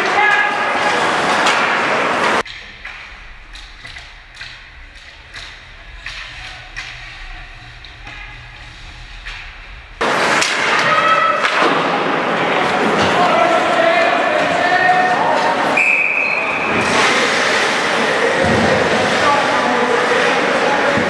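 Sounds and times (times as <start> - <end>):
hockey sticks and puck clacking: 0.0 - 8.3, 9.2 - 15.8
low rink hum: 0.0 - 15.8, 16.4 - 21.0
loud arena noise: 0.0 - 21.0.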